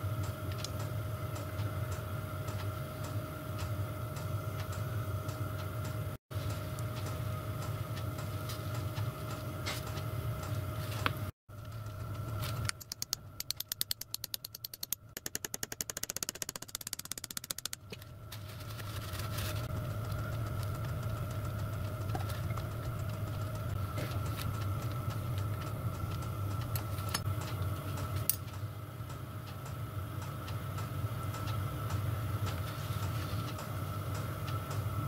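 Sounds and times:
heater hum with faint whistle: 0:00.0 - 0:15.2, 0:17.9 - 0:35.0
ratchet spanner clicking: 0:12.6 - 0:17.8.

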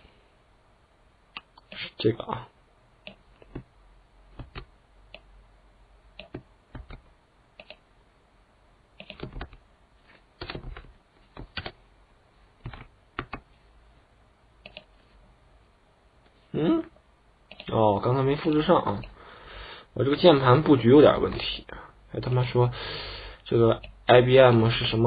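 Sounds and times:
computer keyboard keystrokes: 0:04.4 - 0:04.7, 0:06.2 - 0:07.0, 0:09.0 - 0:09.6, 0:10.4 - 0:11.8, 0:12.6 - 0:13.4.

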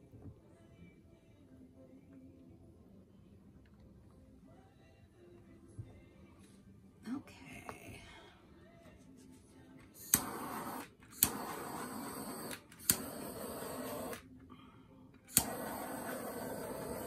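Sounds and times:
torch flame hissing: 0:10.0 - 0:14.2, 0:15.3 - 0:17.0
torch igniter click: 0:10.0 - 0:14.2, 0:15.3 - 0:17.0.

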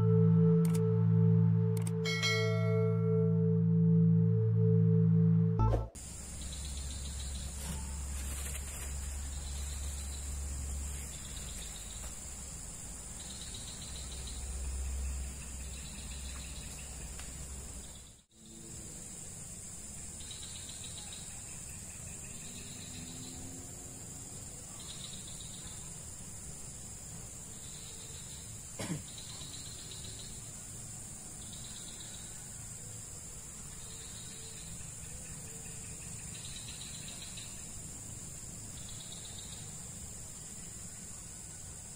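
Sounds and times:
single click: 0:00.6 - 0:00.8, 0:01.8 - 0:02.0
short insect call: 0:03.1 - 0:41.9
high-pitched insect chorus: 0:06.0 - 0:41.9.

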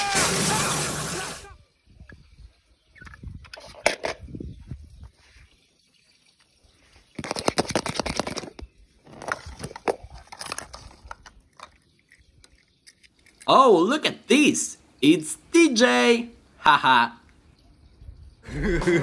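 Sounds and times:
plastic egg handled: 0:07.1 - 0:13.5
toy cars rattling in plastic bowl: 0:07.2 - 0:11.9.

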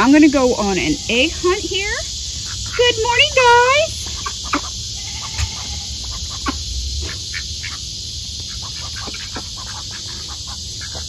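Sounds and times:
ducks and turkeys calling: 0:00.0 - 0:11.0
low rumble: 0:05.8 - 0:08.2.

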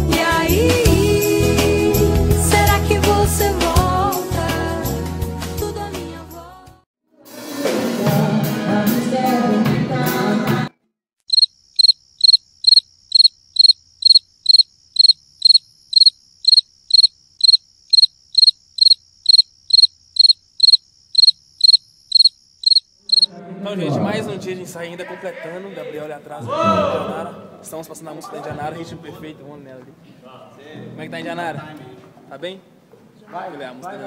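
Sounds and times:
band music with singing: 0:00.0 - 0:06.2
cricket chirping: 0:11.3 - 0:23.3.

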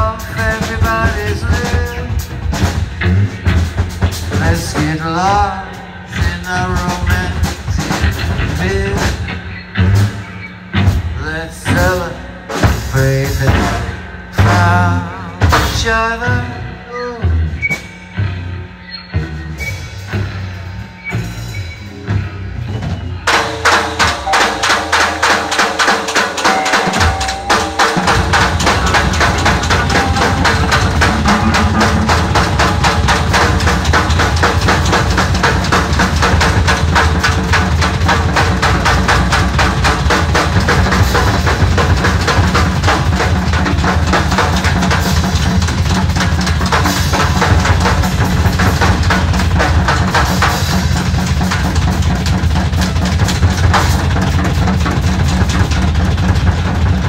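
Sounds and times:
fast dense drumming: 0:00.0 - 0:17.2, 0:22.9 - 0:57.0
distorted electric guitars: 0:00.0 - 0:57.0
heavy low rumble: 0:21.9 - 0:50.2.

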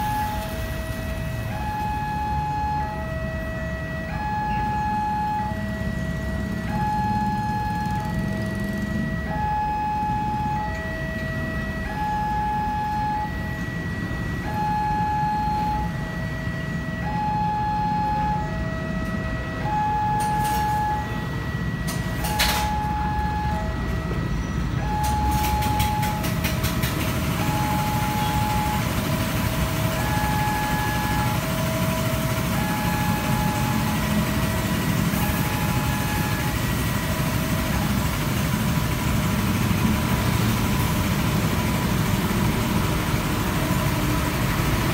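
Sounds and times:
traffic of cars and motorcycles: 0:00.0 - 0:44.9
sharp clicks and rattles: 0:25.0 - 0:27.5.

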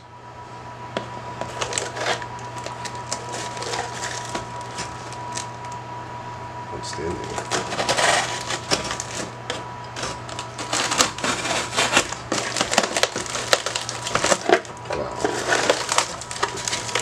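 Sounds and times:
plastic packing rustling: 0:01.4 - 0:05.8, 0:07.2 - 0:17.0
cardboard crackling and tearing: 0:01.5 - 0:05.5, 0:07.2 - 0:09.4, 0:10.0 - 0:17.0.

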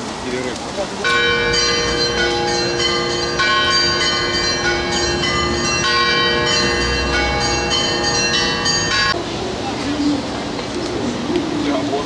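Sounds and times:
church bells ringing: 0:01.0 - 0:09.2
low bell tones held: 0:01.1 - 0:09.2.

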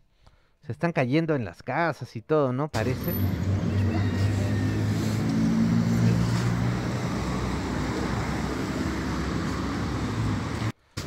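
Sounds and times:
traffic hum: 0:02.8 - 0:10.8
vehicle engine humming: 0:02.8 - 0:10.8.

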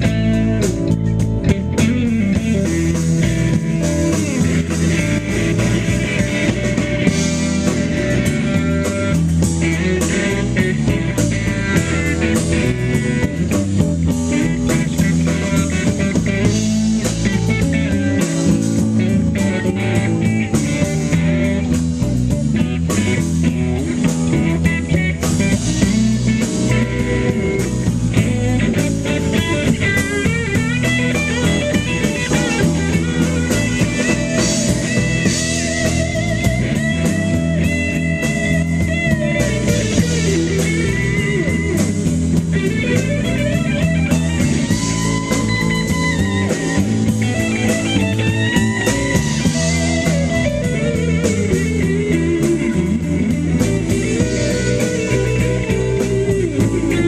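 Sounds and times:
electric guitar bent notes: 0:00.0 - 0:57.0
live blues band: 0:00.0 - 0:57.0.

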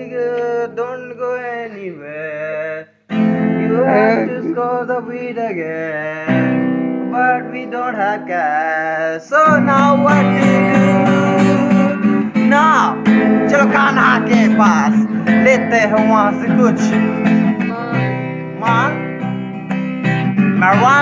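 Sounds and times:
acoustic guitar strumming: 0:00.0 - 0:01.6, 0:03.1 - 0:21.0
man singing: 0:00.0 - 0:19.2, 0:20.5 - 0:21.0.

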